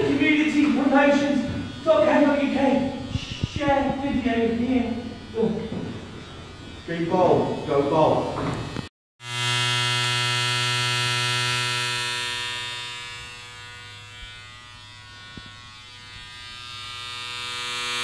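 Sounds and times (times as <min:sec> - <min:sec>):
electric hair clippers buzzing: 0:00.0 - 0:18.0.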